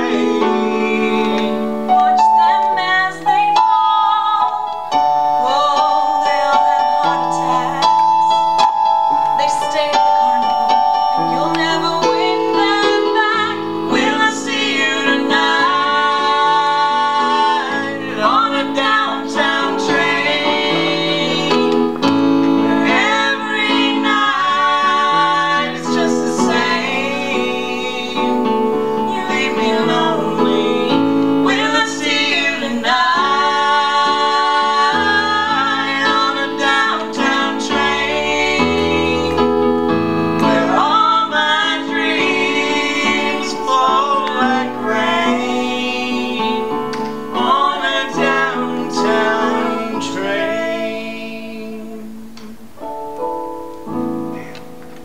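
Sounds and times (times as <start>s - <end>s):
man singing: 0.0s - 1.7s
woman singing: 0.0s - 8.6s, 9.2s - 22.0s, 22.7s - 39.7s, 40.4s - 52.7s
instrumental accompaniment: 0.0s - 55.0s.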